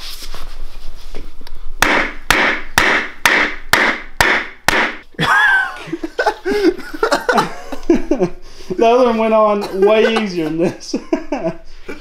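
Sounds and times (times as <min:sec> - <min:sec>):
rubber mallet striking wooden block: 0:01.8 - 0:05.1.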